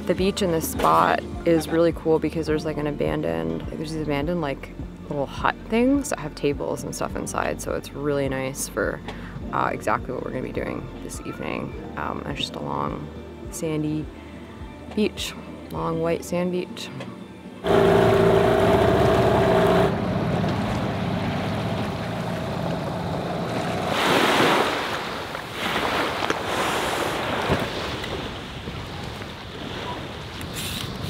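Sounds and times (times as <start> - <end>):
outboard motor humming: 17.6 - 24.2
water splashing past: 19.9 - 30.8
small waves washing onto beach: 20.4 - 31.0.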